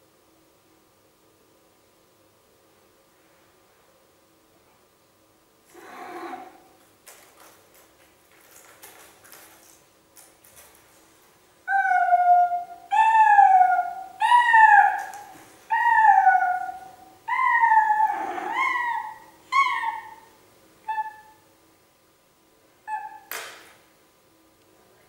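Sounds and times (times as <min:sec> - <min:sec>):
cat yowling: 0:11.7 - 0:21.4, 0:22.9 - 0:23.3.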